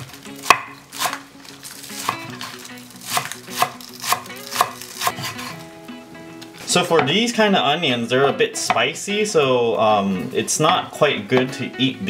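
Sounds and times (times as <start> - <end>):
knife chopping on wooden board: 0.4 - 1.2, 3.1 - 5.5.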